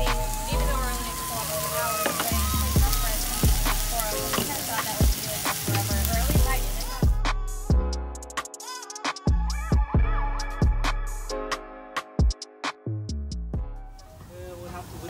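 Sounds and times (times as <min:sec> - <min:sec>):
background music with a beat: 0:00.0 - 0:01.2, 0:01.8 - 0:14.4
meat sizzling on a griddle: 0:00.0 - 0:07.2.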